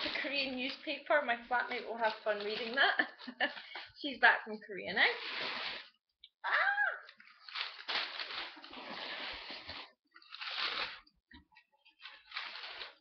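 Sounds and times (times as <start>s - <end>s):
packing paper rustling and crunching: 0.0s - 3.8s, 7.1s - 11.1s, 11.9s - 13.0s.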